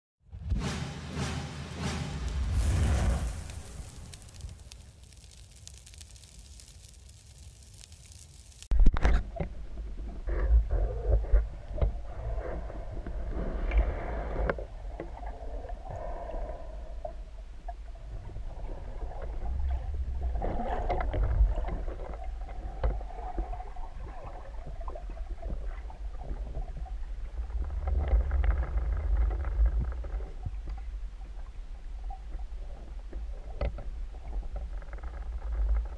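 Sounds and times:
low rumble of moving water: 2.2 - 35.9
underwater clicks and knocks: 20.4 - 23.5, 33.1 - 35.9.

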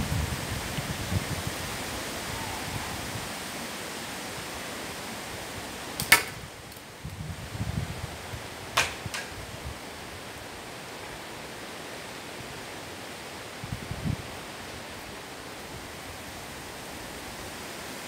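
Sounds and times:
wind buffeting microphone: 0.0 - 3.5, 5.3 - 10.4, 13.6 - 14.5
slingshot cracks: 6.0 - 6.8, 8.8 - 9.3.

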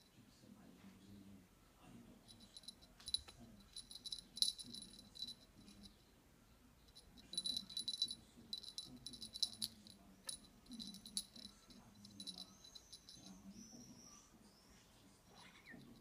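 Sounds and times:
cat toy rattling: 2.3 - 5.9, 6.9 - 13.4.

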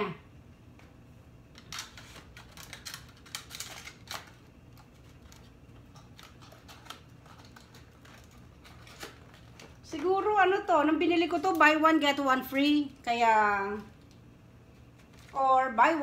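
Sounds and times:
packaging crackling rustles: 1.5 - 10.4, 13.7 - 15.6.

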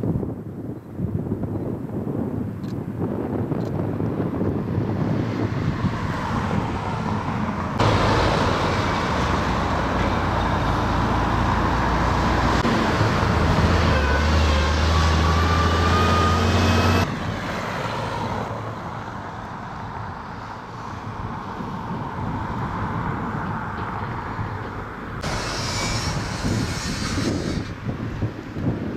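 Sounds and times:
traffic hum: 0.1 - 28.9
heavy engine running: 6.9 - 17.1, 24.6 - 28.0.

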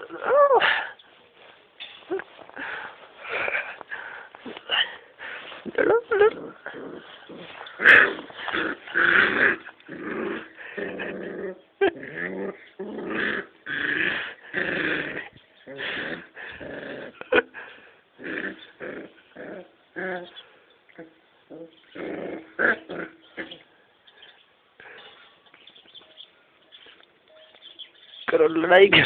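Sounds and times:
puppies growling: 2.2 - 23.7.

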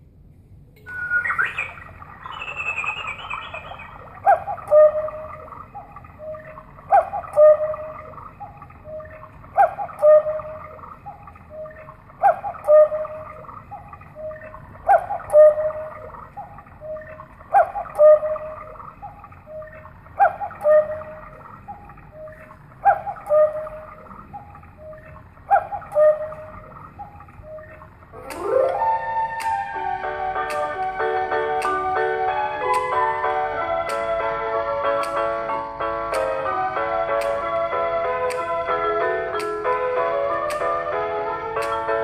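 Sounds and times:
two-note cuckoo call: 0.8 - 34.3
soft clock tones: 1.7 - 29.8, 39.3 - 40.9
clock click: 24.3 - 28.8, 31.6 - 31.8, 32.6 - 33.0, 33.8 - 34.1, 35.0 - 35.3, 37.1 - 37.4, 38.2 - 38.5, 39.3 - 39.8, 40.4 - 40.9, 41.6 - 41.9.

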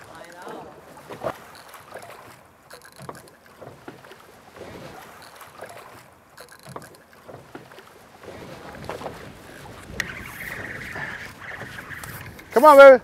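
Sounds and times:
waves lapping against boat hull: 0.0 - 13.0
wind on microphone: 8.2 - 12.6.

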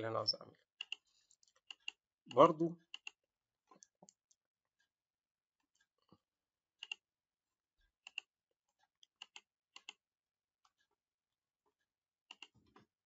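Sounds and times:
computer mouse clicking: 0.8 - 2.0, 6.8 - 7.0, 8.0 - 8.3, 9.0 - 10.0, 12.3 - 12.6.

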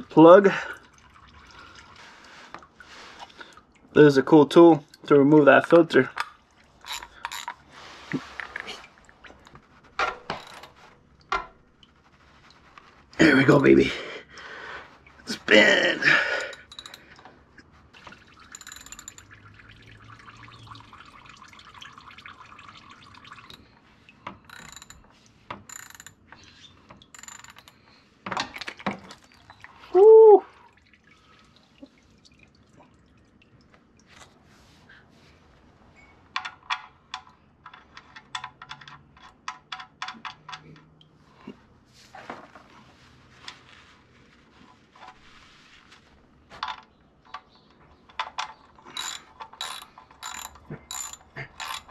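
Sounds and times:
tools clinking: 6.1 - 7.7, 9.3 - 11.6, 16.2 - 17.3, 18.0 - 19.7, 24.3 - 28.6, 48.1 - 51.9
ratchet wrench clicking: 6.9 - 7.5, 16.4 - 17.0, 18.5 - 19.3, 24.5 - 25.0, 25.7 - 26.2, 27.2 - 27.7, 48.9 - 51.9
oil dripping into a pan: 18.0 - 23.7.

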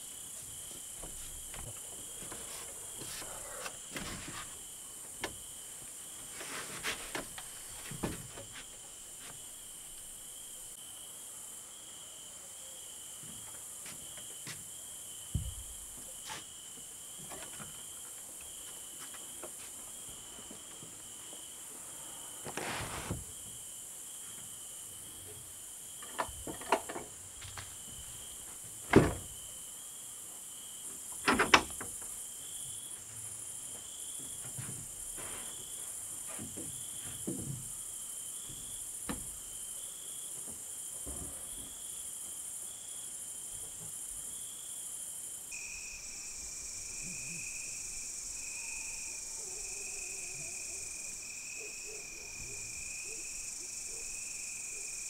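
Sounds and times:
crickets chirping: 0.0 - 55.0
knocks and creaks: 26.0 - 28.0, 31.1 - 32.1, 36.3 - 37.8.

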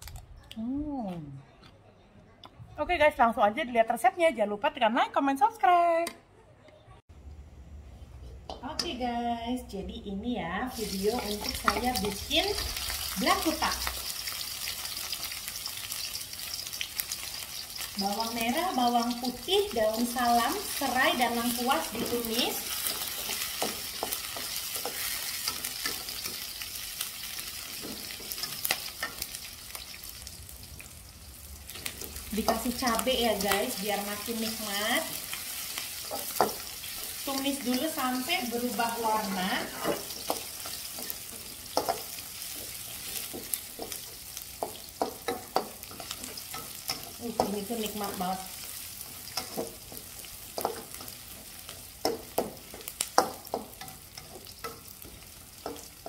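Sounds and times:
food sizzling in a wok: 10.6 - 56.0
spatula scraping a wok: 20.4 - 30.0
spatula clicking on wok: 39.8 - 47.6, 49.3 - 56.0.

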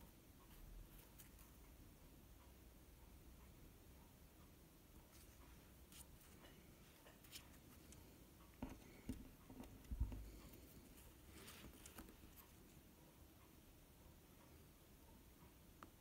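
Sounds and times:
faint handling clicks and taps: 4.4 - 13.6.

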